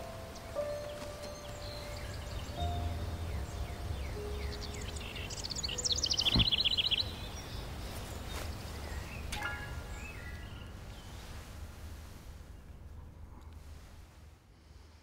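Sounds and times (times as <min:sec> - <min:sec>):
birds chirping: 0:00.0 - 0:11.6
low steady rumble: 0:01.8 - 0:15.0.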